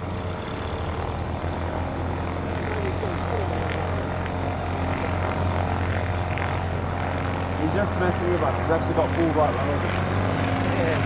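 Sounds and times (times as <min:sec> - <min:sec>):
light aircraft engine droning: 0:00.0 - 0:11.0.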